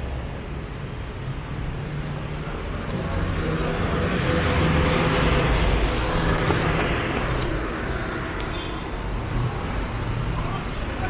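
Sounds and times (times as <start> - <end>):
vehicle engines: 0.0 - 11.0.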